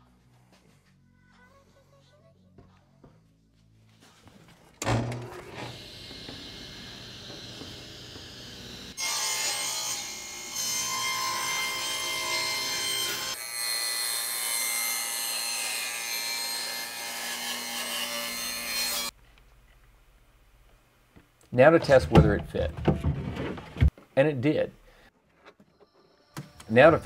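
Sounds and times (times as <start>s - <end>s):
table saw cutting plywood: 4.9s - 19.1s.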